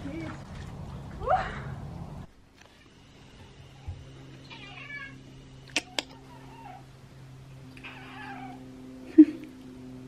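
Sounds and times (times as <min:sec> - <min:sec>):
steady low hum: 0:00.0 - 0:10.0
cats meowing: 0:02.7 - 0:06.9, 0:07.7 - 0:08.6.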